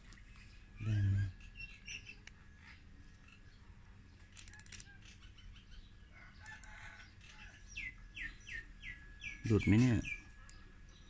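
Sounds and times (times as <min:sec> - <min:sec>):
faint bird chirps: 0:00.3 - 0:11.0
cable tie ratcheting clicks: 0:04.3 - 0:04.9.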